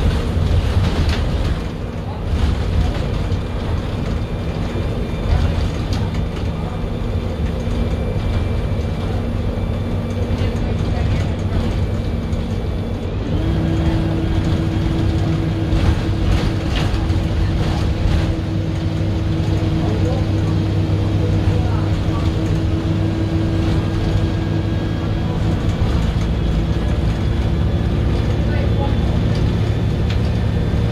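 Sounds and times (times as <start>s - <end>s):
bus body rattles and clicks: 0.0s - 30.9s
bus diesel engine running: 0.0s - 30.9s
drivetrain whine: 0.0s - 30.9s
road rumble: 0.0s - 30.9s.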